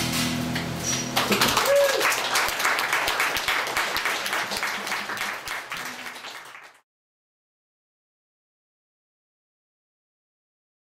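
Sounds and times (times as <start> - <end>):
audience applauding: 1.1 - 6.8.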